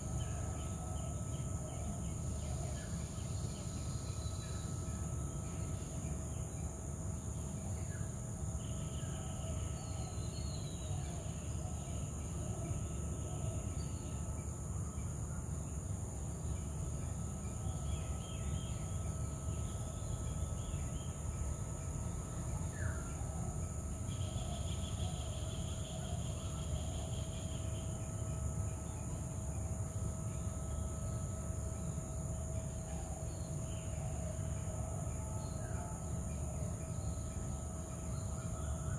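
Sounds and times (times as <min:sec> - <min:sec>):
high-pitched insect drone: 0:00.0 - 0:38.9.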